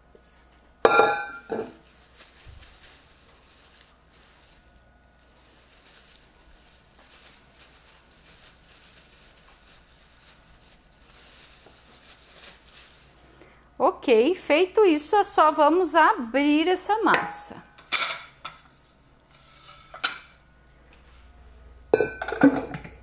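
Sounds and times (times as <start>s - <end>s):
plastic bag rustling: 1.3s - 13.4s.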